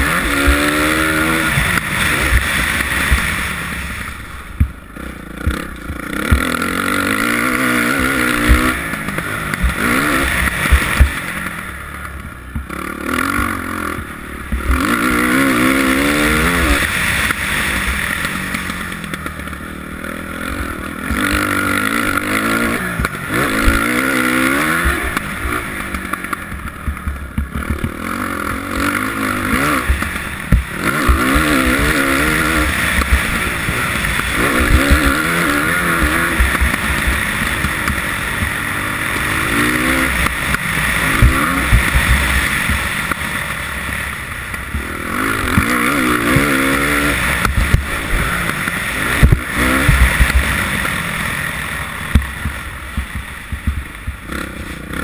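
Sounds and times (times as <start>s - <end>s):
motorcycle engine revving: 0.0s - 55.0s
steady rushing noise: 0.0s - 55.0s
low thumps: 52.1s - 54.3s.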